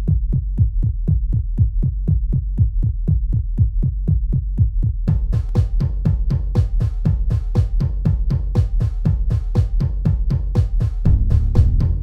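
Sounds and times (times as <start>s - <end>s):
deep kick drum: 0.0s - 12.0s
bright drums and cymbals: 5.1s - 12.0s
low bass: 11.0s - 12.0s.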